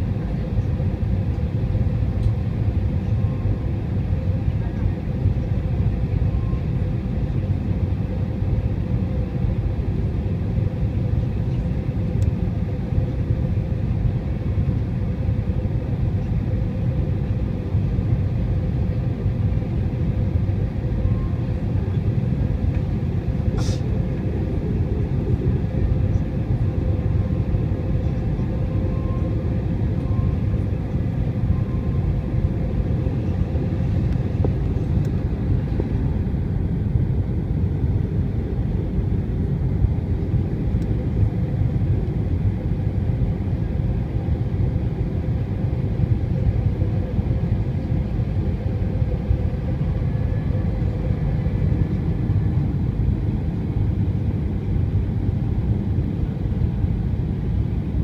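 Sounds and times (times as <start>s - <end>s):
aircraft engine rumble in cabin: 0.0s - 58.0s.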